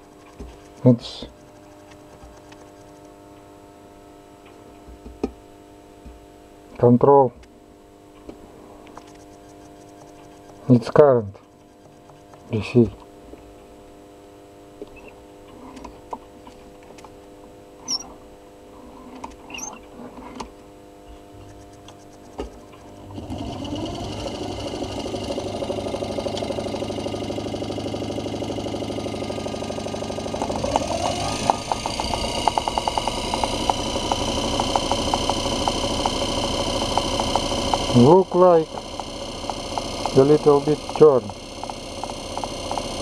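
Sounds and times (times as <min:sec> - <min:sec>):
electric motor whirring: 0:23.0 - 0:43.0
fast ticking: 0:23.6 - 0:43.0.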